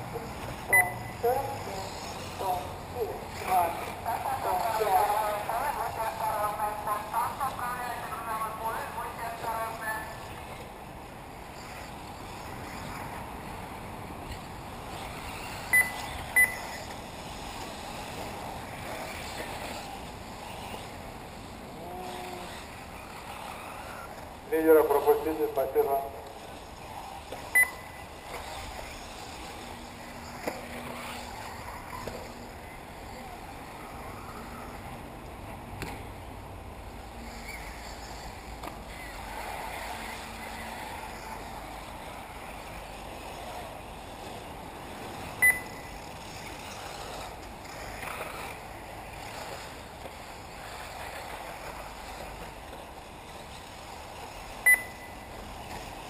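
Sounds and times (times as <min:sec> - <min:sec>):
electric rc cars whirring: 0:00.0 - 0:56.0
short high beeps: 0:00.7 - 0:01.2, 0:15.7 - 0:16.8, 0:27.6 - 0:28.0, 0:45.4 - 0:45.9, 0:54.7 - 0:55.2.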